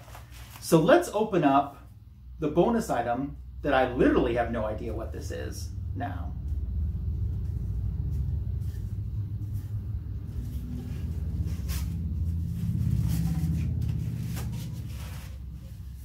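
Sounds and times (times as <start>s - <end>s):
steady low rumble: 1.8s - 16.0s.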